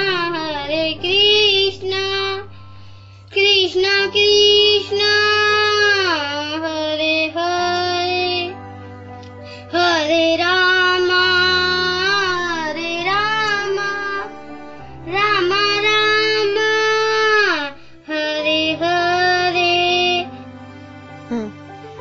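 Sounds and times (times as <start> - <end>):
child singing: 0.0 - 2.5, 3.3 - 8.6, 9.7 - 14.3, 15.1 - 20.3
low instrumental accompaniment: 0.0 - 22.0.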